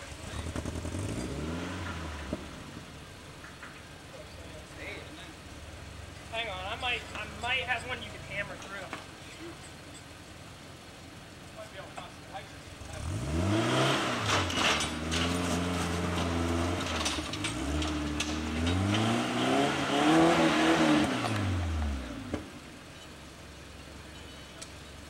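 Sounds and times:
engine revving: 0:00.0 - 0:02.9, 0:12.7 - 0:22.6.

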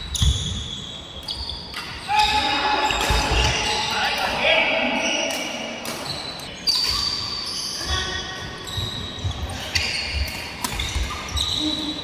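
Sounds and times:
shoes squeaking on court floor: 0:00.0 - 0:04.2, 0:05.0 - 0:12.0.

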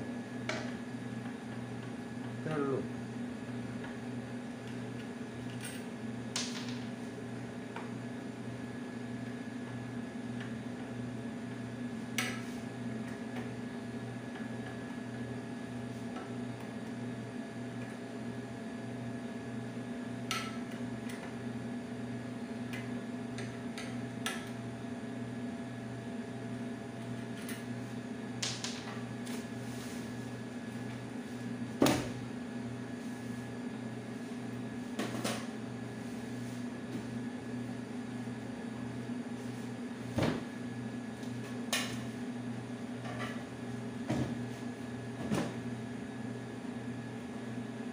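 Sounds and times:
low electrical hum: 0:00.0 - 0:47.9.

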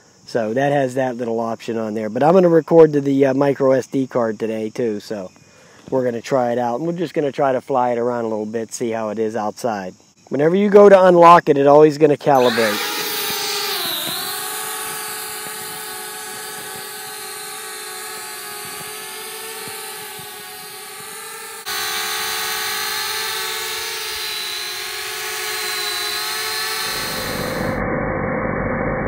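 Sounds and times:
drone propellers buzzing: 0:12.4 - 0:27.9.

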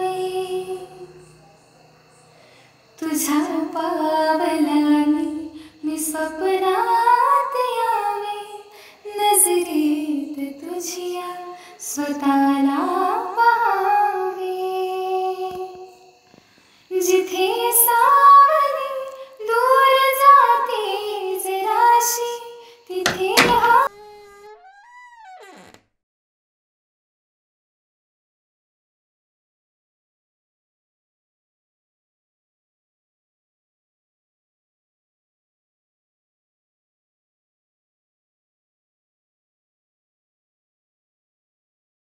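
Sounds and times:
woman singing a slow song: 0:00.0 - 0:01.3, 0:03.0 - 0:16.1, 0:16.9 - 0:23.9.

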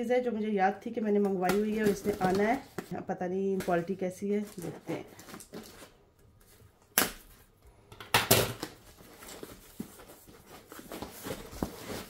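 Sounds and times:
packaging handling noises: 0:01.4 - 0:02.9, 0:03.6 - 0:07.6, 0:08.3 - 0:12.0
packaging rustling and tearing: 0:04.4 - 0:07.4, 0:08.6 - 0:12.0.

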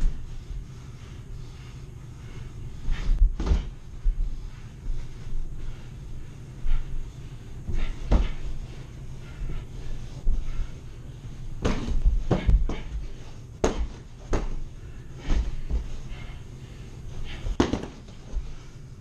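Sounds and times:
boxing gloves thudding: 0:11.6 - 0:13.0, 0:13.6 - 0:14.6, 0:17.5 - 0:18.2.

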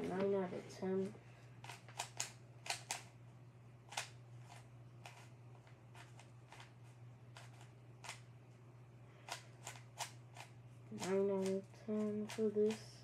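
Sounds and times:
puzzle cube clicking: 0:01.6 - 0:03.1.

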